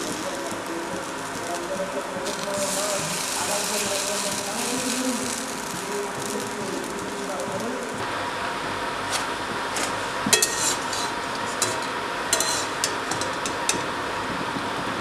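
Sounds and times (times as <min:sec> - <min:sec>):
frying sizzle: 0:00.0 - 0:15.0
metal spatula clinking on wok: 0:10.3 - 0:13.9.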